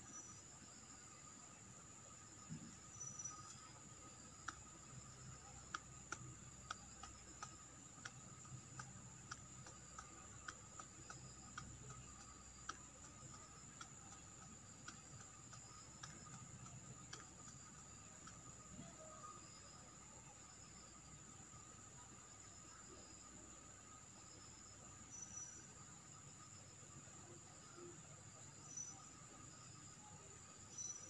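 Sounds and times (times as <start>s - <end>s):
faint sharp ticks: 2.9s - 20.8s.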